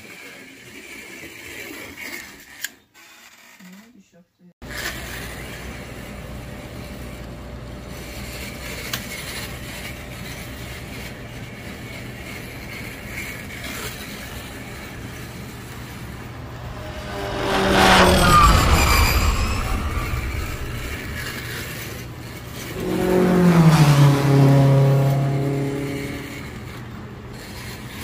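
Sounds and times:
slot car motor and gears: 12.8 - 28.0
low hum: 15.8 - 26.8.

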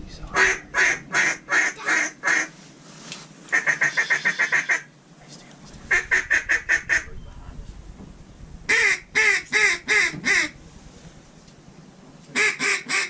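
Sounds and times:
duck call quacks: 0.4 - 2.5, 3.5 - 4.9, 8.7 - 10.6, 12.3 - 13.0.

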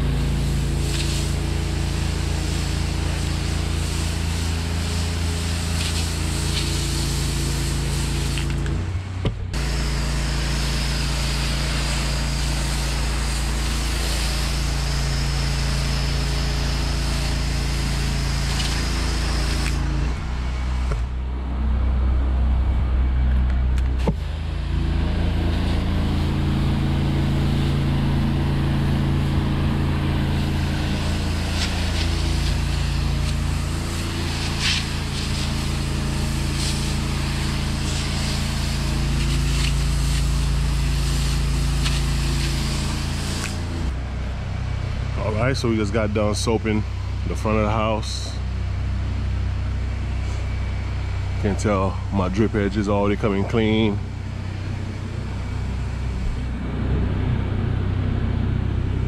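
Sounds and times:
pressure washer engine running: 0.0 - 59.0
spray wand hissing: 0.3 - 8.6, 9.6 - 19.9, 28.7 - 43.9.

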